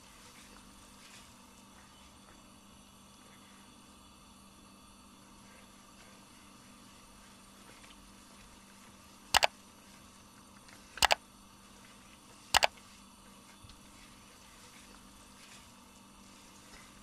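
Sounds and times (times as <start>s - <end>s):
faint steady hum: 0.0s - 17.0s
mouse double clicks: 11.0s - 11.2s.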